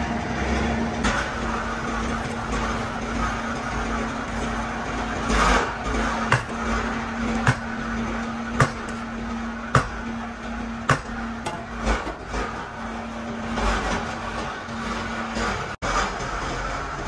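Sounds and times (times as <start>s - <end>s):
factory machinery humming: 0.0s - 17.0s
sharp metallic knocks: 1.0s - 12.6s.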